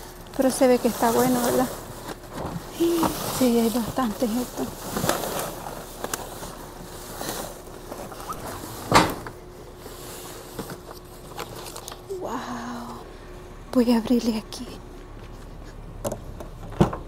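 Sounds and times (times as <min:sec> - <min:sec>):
cardboard scraping and rustling: 0:00.7 - 0:12.0.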